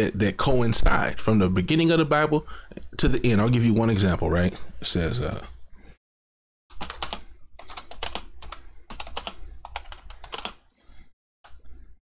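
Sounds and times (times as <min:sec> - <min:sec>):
typing on computer keyboard: 0:06.7 - 0:10.6.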